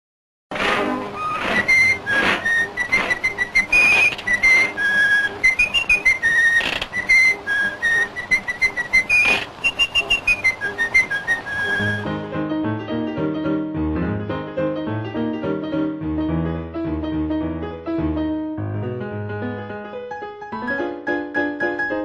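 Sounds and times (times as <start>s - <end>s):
whistled tune: 1.1s - 12.2s.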